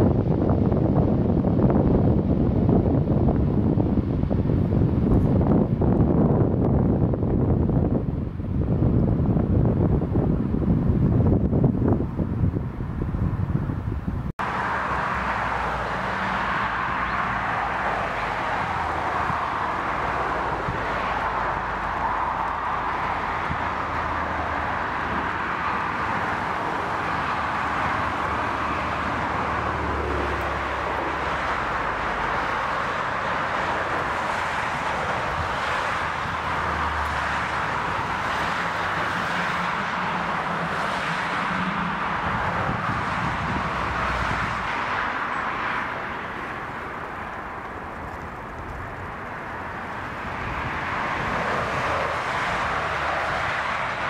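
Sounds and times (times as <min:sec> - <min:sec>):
jet engines running: 0:14.4 - 0:54.0.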